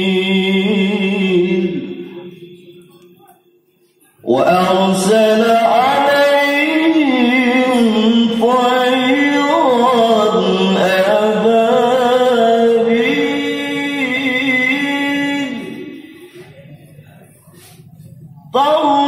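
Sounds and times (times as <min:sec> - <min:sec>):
man reciting melodically over loudspeaker: 0:00.0 - 0:19.0.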